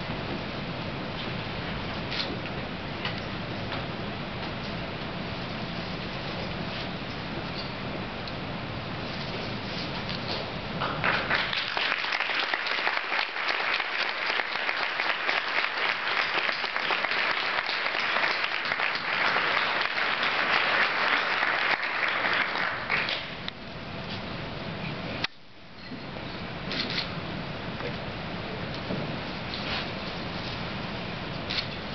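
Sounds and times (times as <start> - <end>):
audience applauding: 10.8 - 23.4.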